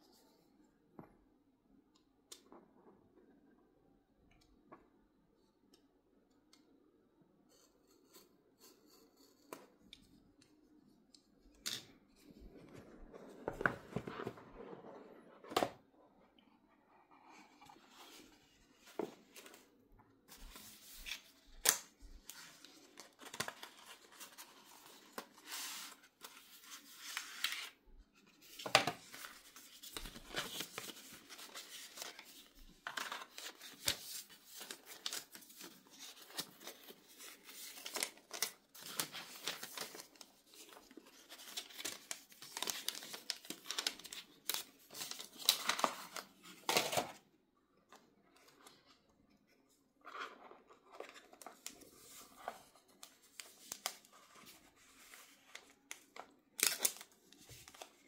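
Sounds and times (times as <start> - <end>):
paper rustling and scraping: 12.2 - 15.7, 22.2 - 47.2.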